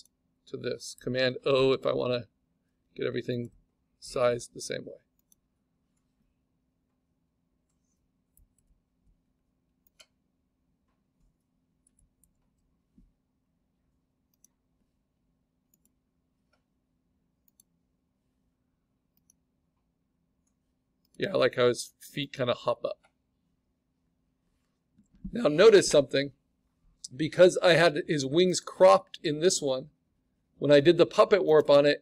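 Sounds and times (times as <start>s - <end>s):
faint low hum: 0.0s - 32.0s
computer mouse clicks: 5.2s - 5.4s, 7.7s - 8.8s, 9.8s - 10.2s, 11.8s - 12.6s, 14.3s - 14.6s, 15.7s - 16.7s, 17.4s - 17.8s, 19.1s - 19.4s.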